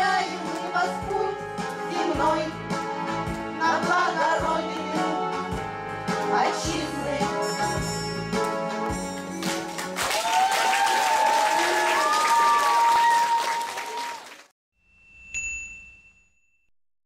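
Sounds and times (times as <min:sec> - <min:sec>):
backing music: 0:00.0 - 0:10.1
audience applause: 0:09.4 - 0:14.5
bright chime: 0:14.9 - 0:16.7.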